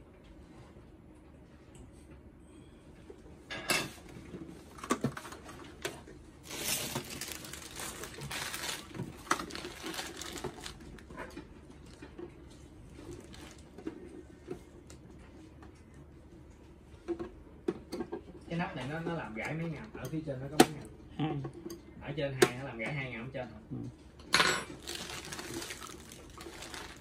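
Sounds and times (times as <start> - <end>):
plastic bag crinkling: 6.4 - 12.0, 12.9 - 13.8, 24.7 - 27.0.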